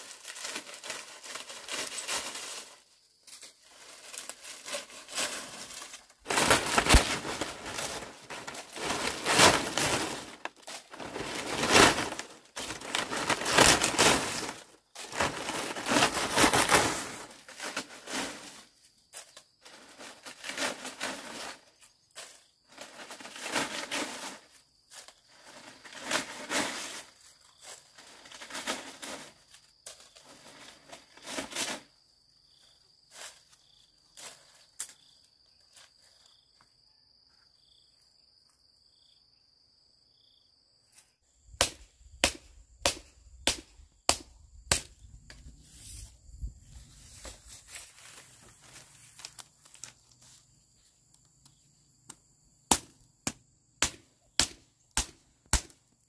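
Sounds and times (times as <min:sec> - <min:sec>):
rustling and crinkling: 0:00.0 - 0:32.0, 0:33.0 - 0:36.4, 0:45.1 - 0:52.3.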